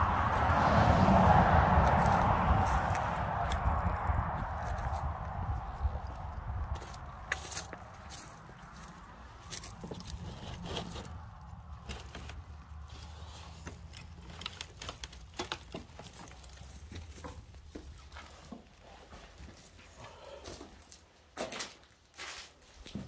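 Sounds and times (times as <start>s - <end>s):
steady low rumble: 0.0s - 10.5s
footsteps: 0.0s - 13.8s
crinkling: 6.7s - 19.5s
small knocks and scrapes: 9.5s - 19.5s.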